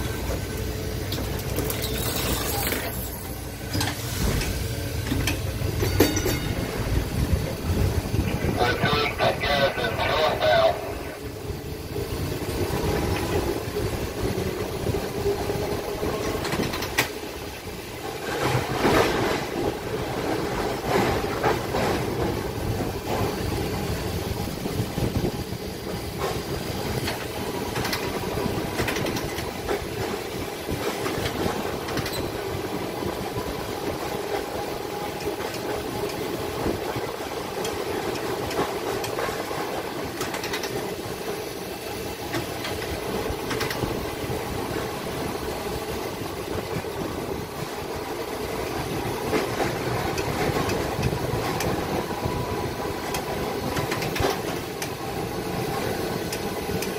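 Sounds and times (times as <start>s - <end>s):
streetcar wheels rumbling: 0.0s - 56.9s
sharp clacks and rattles: 26.2s - 32.3s, 37.6s - 40.9s, 42.3s - 43.9s.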